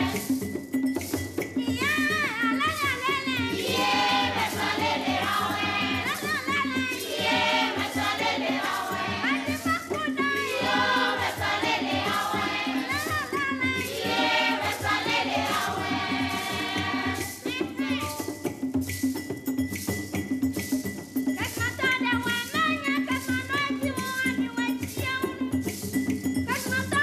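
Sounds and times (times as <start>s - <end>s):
choir of women singing: 0.0s - 0.3s, 3.5s - 17.9s
steady percussion beat: 0.0s - 27.0s.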